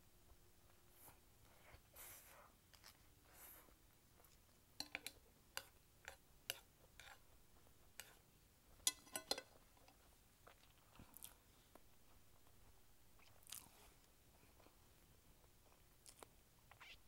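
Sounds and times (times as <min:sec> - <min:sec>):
chewing noodles: 0:09.5 - 0:17.0.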